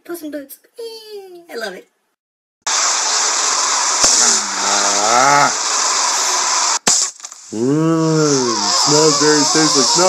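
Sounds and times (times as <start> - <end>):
man crying out: 4.3 - 5.6, 7.6 - 10.0.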